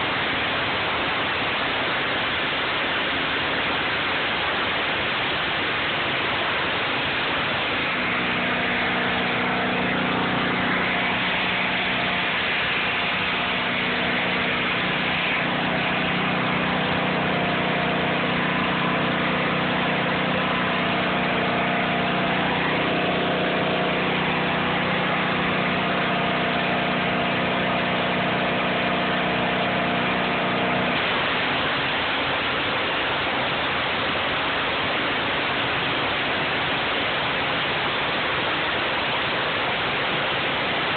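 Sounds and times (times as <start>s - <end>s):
engine hum: 0.0s - 40.9s
pressure washer jet hissing: 5.4s - 33.9s.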